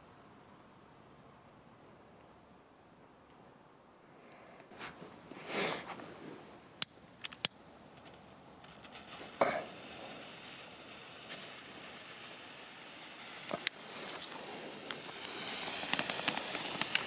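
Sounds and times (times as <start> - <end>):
firework stick hissing: 4.2 - 17.0.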